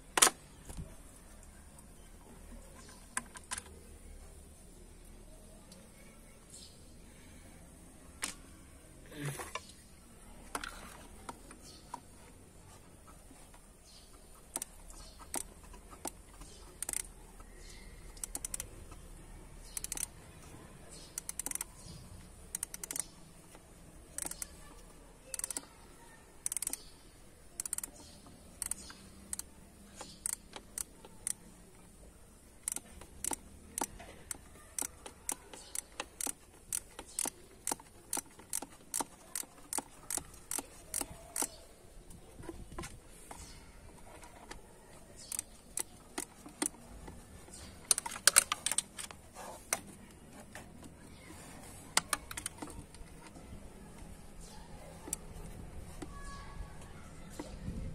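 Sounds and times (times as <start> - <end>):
hand tool clicking on screws: 13.9 - 18.8, 19.6 - 20.1, 21.0 - 21.9, 22.5 - 23.2, 24.1 - 24.7, 25.3 - 25.7, 26.4 - 26.9, 27.6 - 31.5, 32.6 - 44.6, 45.2 - 56.3.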